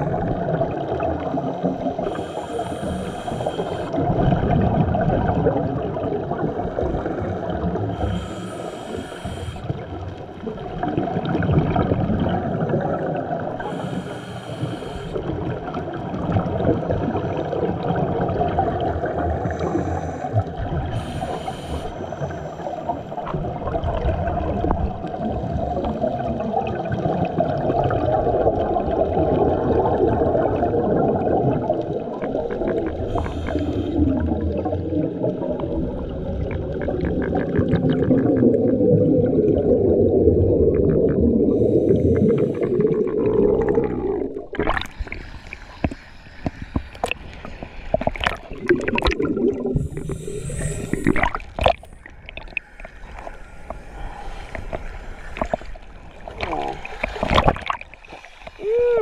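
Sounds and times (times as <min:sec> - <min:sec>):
bubbling of exhaled air: 0:00.0 - 0:59.0
diver inhaling through regulator: 0:02.0 - 0:04.0, 0:07.9 - 0:09.8, 0:13.6 - 0:15.5, 0:19.4 - 0:23.2, 0:32.9 - 0:34.4, 0:41.4 - 0:47.6, 0:49.6 - 0:59.0.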